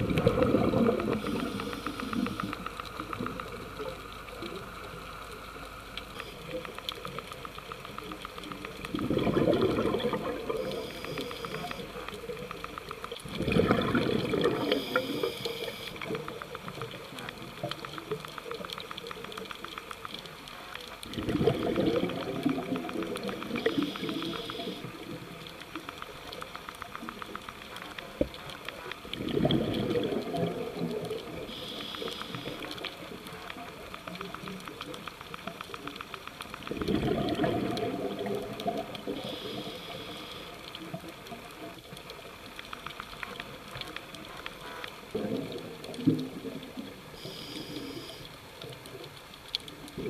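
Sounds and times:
exhaled bubbles gushing: 0.0 - 2.4, 8.7 - 11.8, 13.1 - 18.6, 21.0 - 25.9, 27.6 - 33.3, 36.6 - 39.6, 45.1 - 47.4
faint crackle: 0.0 - 50.0
scuba regulator breathing: 1.1 - 2.5, 39.2 - 40.6, 47.2 - 48.3.

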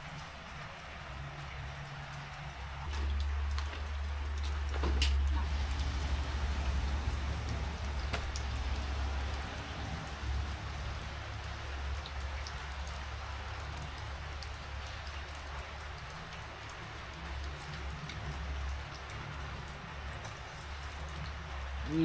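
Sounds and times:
constant low rumble: 0.0 - 22.0
rain falling: 0.0 - 22.0.

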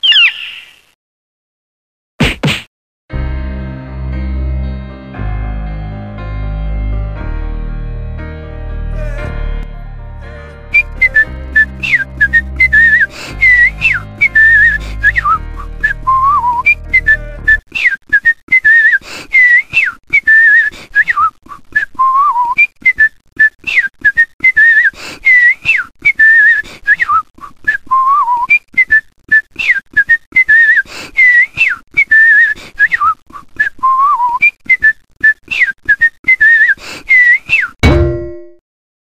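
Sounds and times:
person whistling a tune: 10.7 - 37.8.

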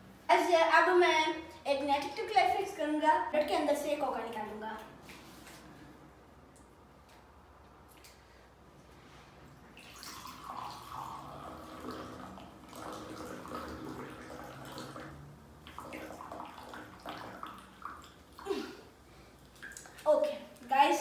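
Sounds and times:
cola pouring into a glass: 9.6 - 18.7.

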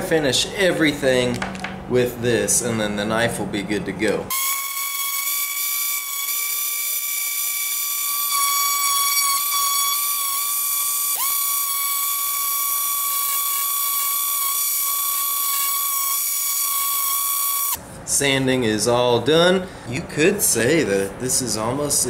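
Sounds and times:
electric sander whining: 4.3 - 17.8.

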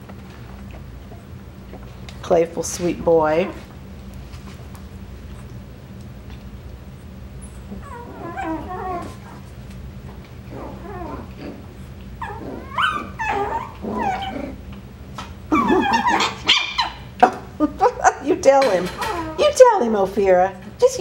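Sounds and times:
puppies growling and whining: 7.2 - 17.2, 18.8 - 19.6.

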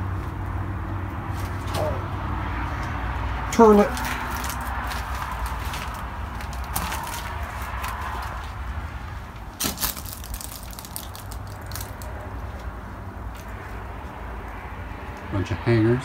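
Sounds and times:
footsteps crunching over debris: 3.9 - 8.6
loud crack: 9.6 - 12.1.

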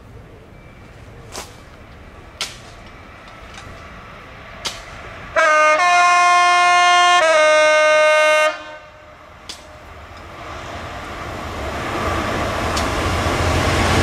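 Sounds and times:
locomotive horn: 5.3 - 9.2.

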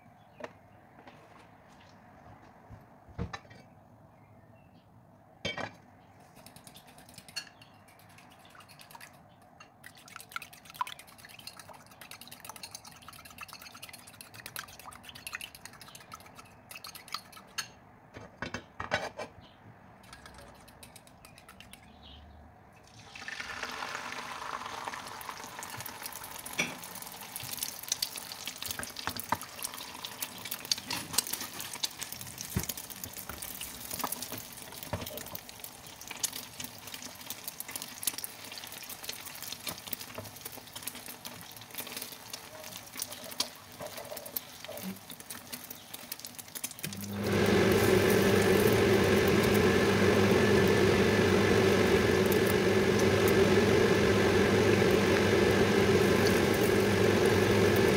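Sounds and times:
oil popping and crackling: 6.4 - 17.7, 22.8 - 57.9
egg sizzling in oil: 9.8 - 17.7, 22.9 - 57.9.

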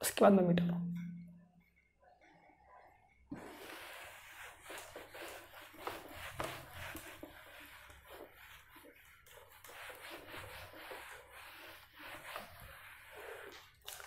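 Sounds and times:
duster rubbing whiteboard: 3.3 - 14.0.

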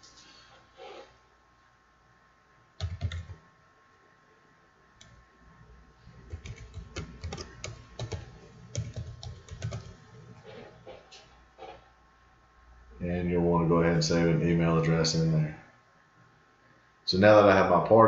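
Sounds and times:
typing on computer keyboard: 2.8 - 3.4, 6.3 - 10.0.

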